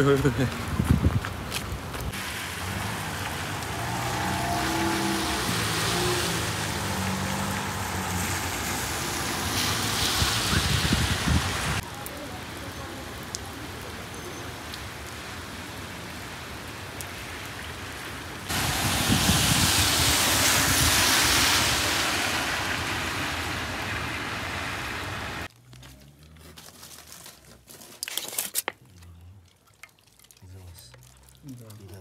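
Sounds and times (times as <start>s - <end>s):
rain on wet pavement: 0.0s - 26.2s, 30.4s - 32.0s
aluminium foil crinkling: 25.5s - 32.0s.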